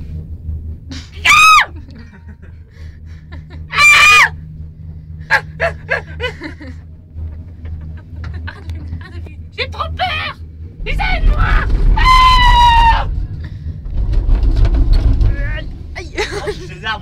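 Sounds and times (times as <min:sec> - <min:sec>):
gondola cabin humming: 0:00.0 - 0:17.0
high-pitched shrieks: 0:10.9 - 0:13.4.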